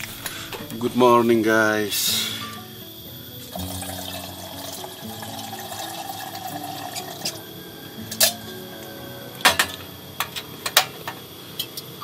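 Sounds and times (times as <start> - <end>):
background music: 0.0 - 11.1
water pouring into metal kettle: 3.5 - 7.4.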